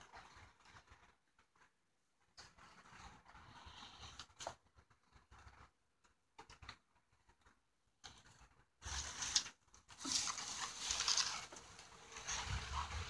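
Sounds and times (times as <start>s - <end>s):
scraping and rustling on plastic bin: 8.8s - 13.0s.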